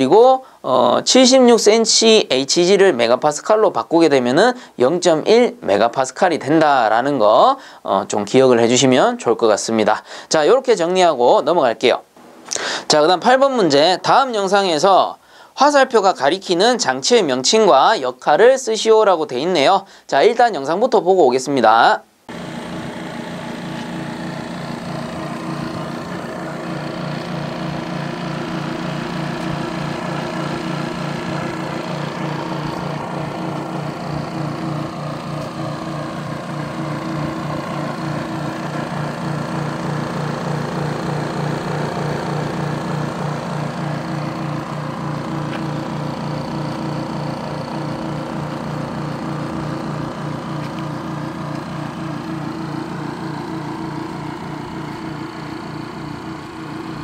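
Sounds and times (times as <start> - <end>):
pulsing compressor motor hum: 22.3 - 57.0.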